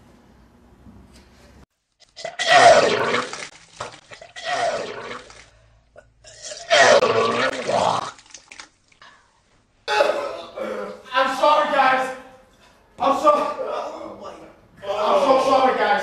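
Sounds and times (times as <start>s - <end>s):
man retching: 2.0s - 3.4s, 4.2s - 5.4s, 6.0s - 8.2s.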